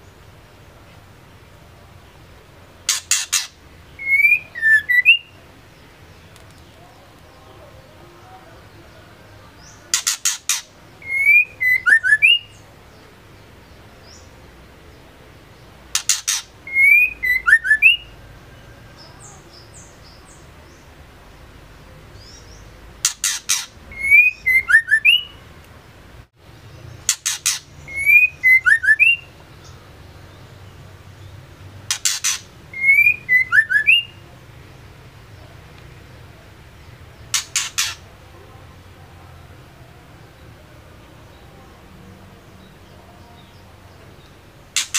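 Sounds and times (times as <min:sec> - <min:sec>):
bird calling: 0:02.8 - 0:05.4, 0:09.6 - 0:12.6, 0:15.9 - 0:18.2, 0:22.3 - 0:25.4, 0:27.0 - 0:29.8, 0:31.9 - 0:34.2, 0:37.2 - 0:38.1.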